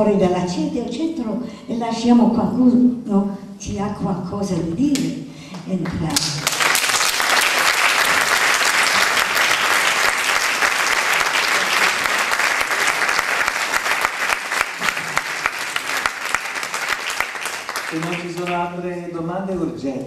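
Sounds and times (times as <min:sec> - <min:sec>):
audience applauding: 0:06.2 - 0:18.7.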